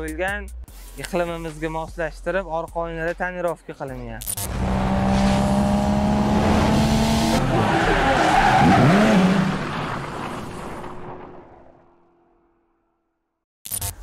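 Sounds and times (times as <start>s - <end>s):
high car engine note: 4.5s - 9.8s
tyres screeching: 7.2s - 10.6s.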